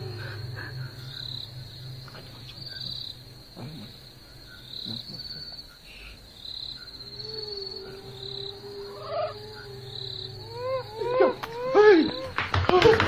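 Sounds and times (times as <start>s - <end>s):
low steady hum: 0.0s - 12.3s
crickets chirping: 0.0s - 13.0s.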